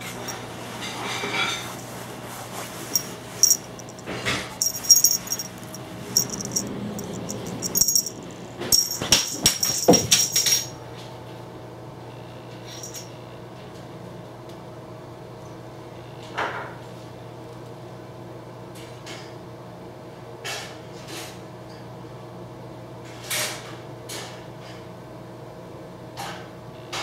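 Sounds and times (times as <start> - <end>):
small bell jingling: 0.0 - 0.4, 2.9 - 10.7, 12.7 - 13.1
steady low hum: 1.7 - 10.7.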